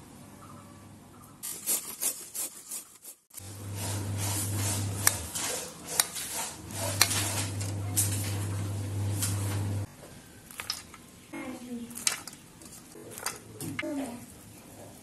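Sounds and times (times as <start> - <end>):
steady low hum: 6.5 - 9.9.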